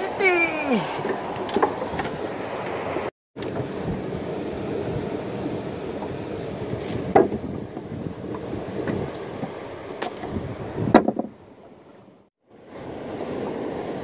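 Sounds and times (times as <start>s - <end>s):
rushing water: 0.0s - 3.1s
rushing wind: 0.0s - 14.0s
knocks on wooden deck: 10.9s - 11.4s.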